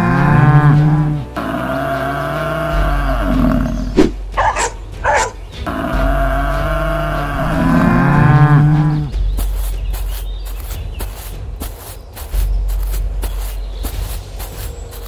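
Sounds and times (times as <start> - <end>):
cattle mooing: 0.0 - 9.1.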